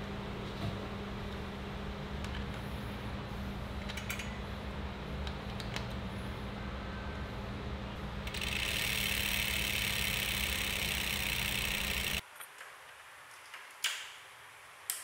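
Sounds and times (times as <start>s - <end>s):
bicycle wheel spinning buzz: 8.0s - 12.2s
freehub ratchet clicking: 8.2s - 12.2s.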